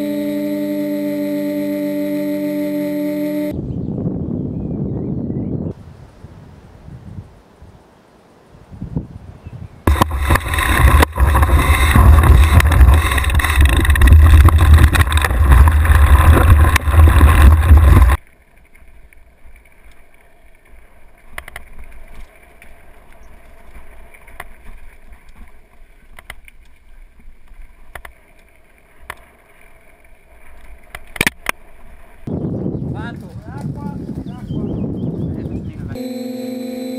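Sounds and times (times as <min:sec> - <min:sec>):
wind buffeting microphone: 0:03.5 - 0:07.8, 0:08.5 - 0:18.2, 0:32.2 - 0:36.0
bike rattling on trail: 0:09.9 - 0:35.4.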